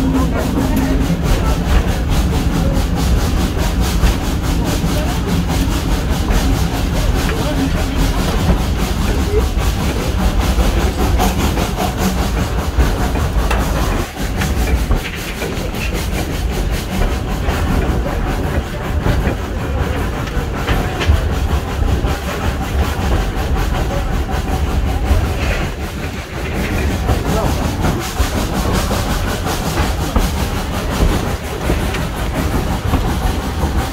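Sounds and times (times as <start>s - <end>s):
steam hiss: 0.0s - 33.9s
steam train running rumble: 0.0s - 33.9s
wheels clicking over rails: 0.0s - 33.9s.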